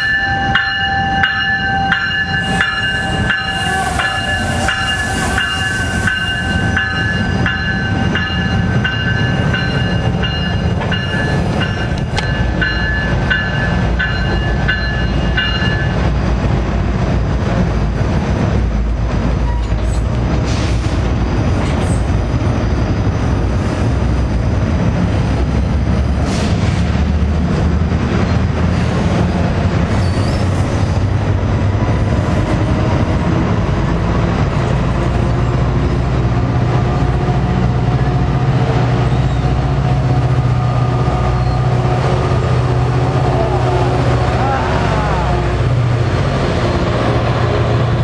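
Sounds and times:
train wheels rumbling on rails: 0.0 - 48.0
low engine drone: 42.3 - 46.7.

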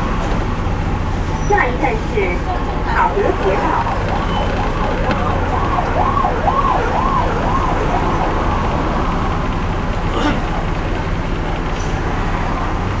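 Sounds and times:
diesel bus engine drone: 0.0 - 13.0
fire engine siren: 3.0 - 9.9.

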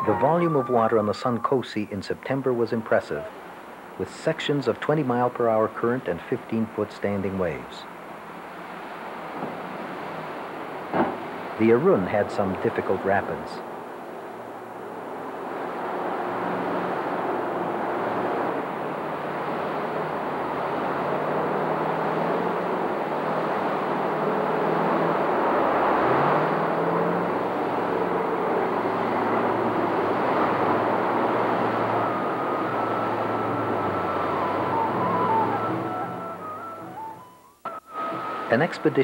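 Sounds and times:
rushing whitewater: 0.0 - 39.0
boat engine running hard: 15.5 - 36.4.

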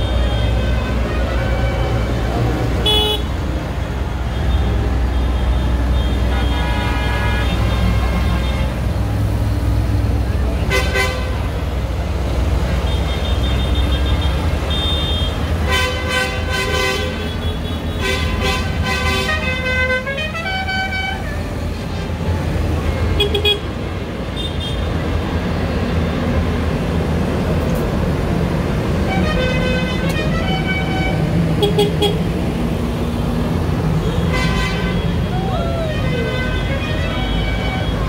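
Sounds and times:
vehicle horns tooting: 0.0 - 3.3, 4.4 - 8.8, 10.6 - 11.5, 12.8 - 21.5, 29.0 - 32.3, 34.0 - 38.0
tractor diesel engines running: 0.0 - 38.0.

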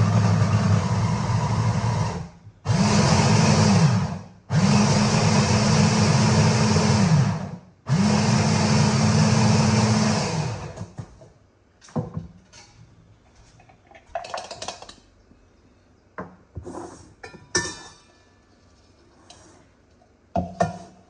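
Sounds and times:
blender motor running: 0.0 - 10.8.

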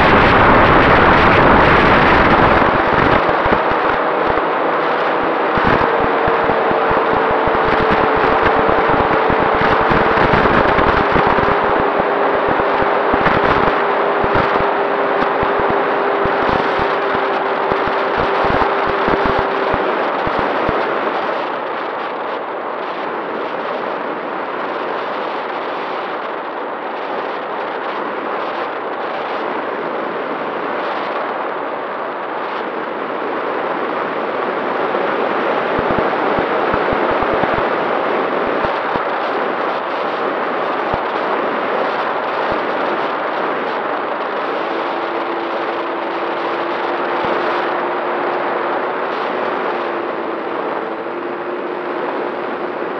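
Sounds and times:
lower motor tone: 0.0 - 21.0
wind rushing over camera: 0.0 - 52.9.

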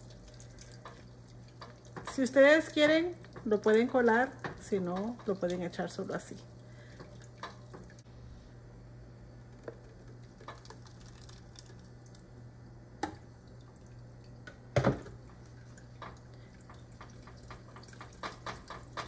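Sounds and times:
sauce dripping into a pot: 0.0 - 2.2, 9.6 - 12.3
low steady hum: 0.0 - 19.0
thick sauce pouring: 10.2 - 12.2.

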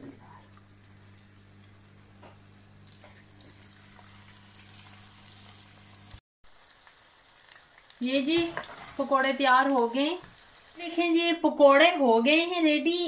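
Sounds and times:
oil bubbling and crackling: 0.0 - 11.0.

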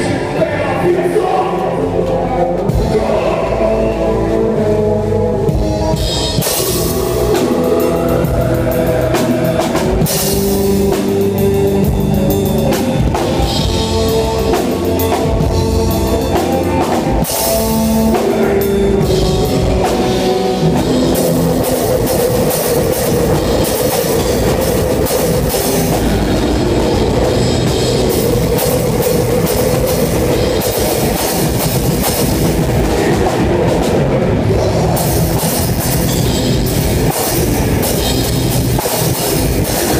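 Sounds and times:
rock band playing loudly: 0.0 - 39.9
sustained electric guitar: 0.0 - 39.9
fast drumming: 5.5 - 39.9.

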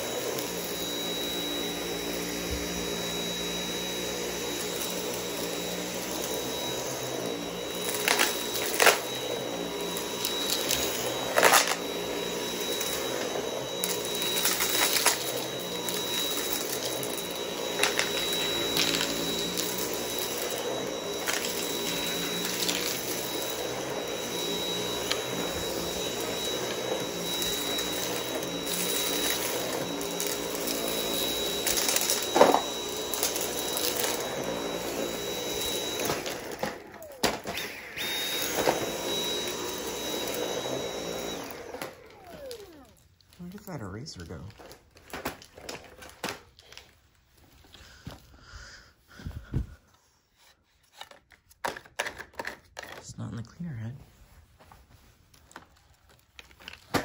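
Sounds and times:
vacuum cleaner whining: 0.0 - 53.5, 54.1 - 57.0.

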